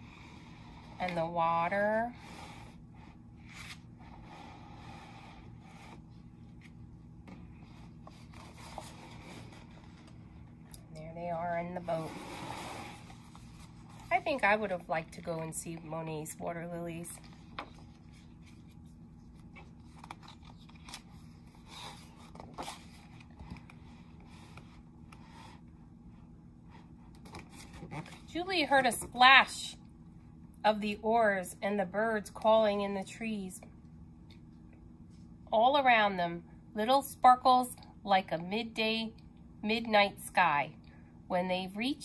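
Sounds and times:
steady low hum: 0.0s - 42.0s
book pages rustling: 3.4s - 3.9s, 5.8s - 10.3s, 17.2s - 25.6s.

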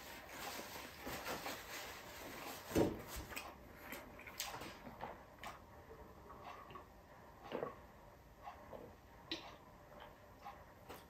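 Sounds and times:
person eating by hand: 3.3s - 7.9s.

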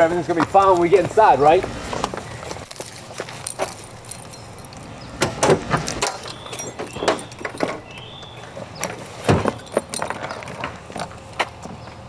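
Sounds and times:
keys jangling: 2.6s - 5.2s, 5.8s - 7.9s, 9.0s - 11.1s.

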